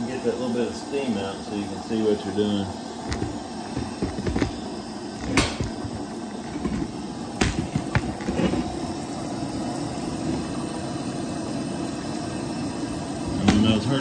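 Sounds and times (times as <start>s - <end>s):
gas burner rumble: 0.0s - 14.0s
sharp clicks and knocks: 3.0s - 4.6s.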